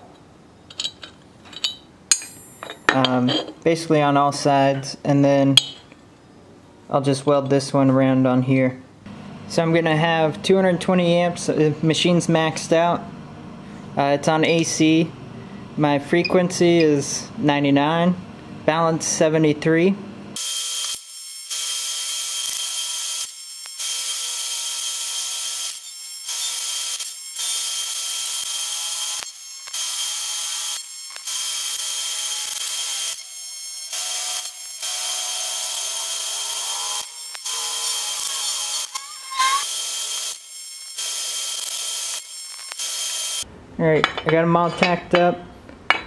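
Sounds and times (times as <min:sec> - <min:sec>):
welding arc buzzing: 0:20.4 - 0:43.5.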